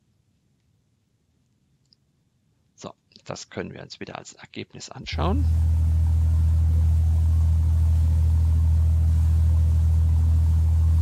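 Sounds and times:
motorboat engine droning: 0:05.1 - 0:11.0.

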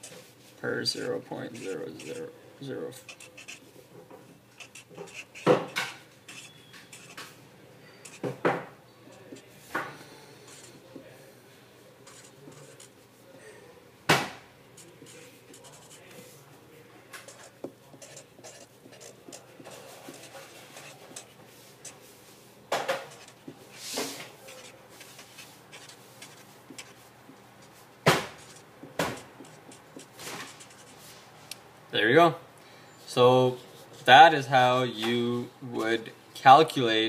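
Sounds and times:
marker scratching on paper: 0:01.0 - 0:02.3, 0:03.0 - 0:07.4, 0:08.0 - 0:08.4, 0:09.2 - 0:09.5, 0:10.5 - 0:10.8, 0:12.0 - 0:13.0, 0:14.8 - 0:16.3, 0:17.2 - 0:31.2.

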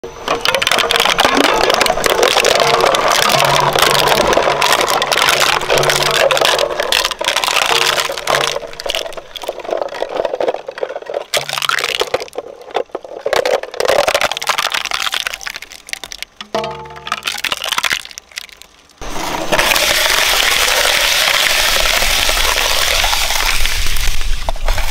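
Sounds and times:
shredder cracking plastic: 0:00.3 - 0:18.6.

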